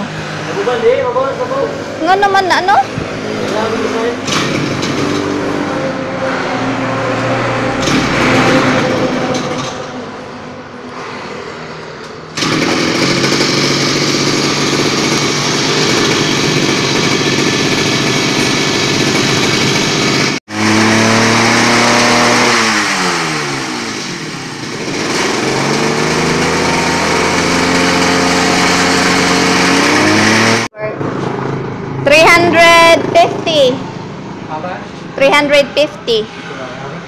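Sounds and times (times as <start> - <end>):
two-stroke brush cutter engine revving: 0.4 - 6.1, 6.7 - 10.0, 12.3 - 30.8.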